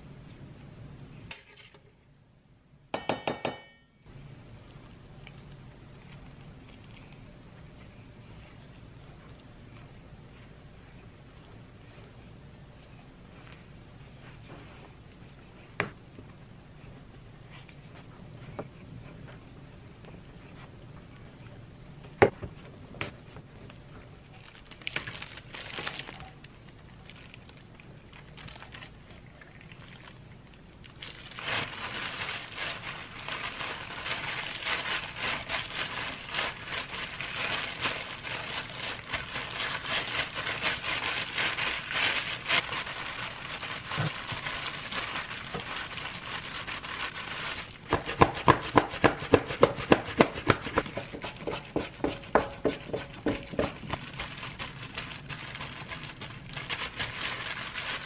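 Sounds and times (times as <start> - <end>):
hands kneading dough: 4.1 - 58.0
plastic gloves crinkling: 4.4 - 58.0
hands patting dough: 47.8 - 54.2.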